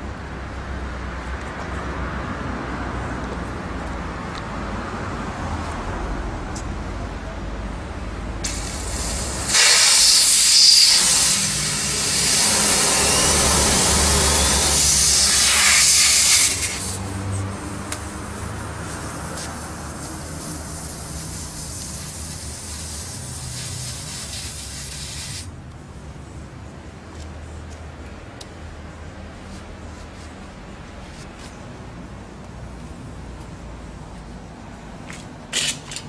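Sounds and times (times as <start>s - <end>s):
compressed air hissing: 8.4s - 25.5s.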